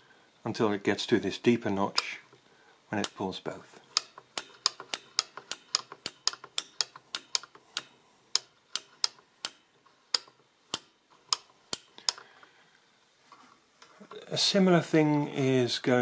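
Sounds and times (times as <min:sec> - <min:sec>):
toy adding machine clicking: 0:03.9 - 0:12.3.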